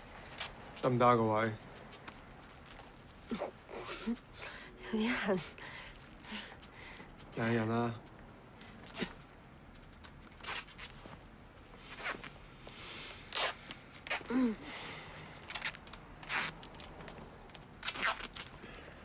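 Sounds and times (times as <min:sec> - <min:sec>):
adhesive tape ripping off roll: 0:10.4 - 0:11.0, 0:13.2 - 0:14.3, 0:15.4 - 0:17.0, 0:17.8 - 0:18.5.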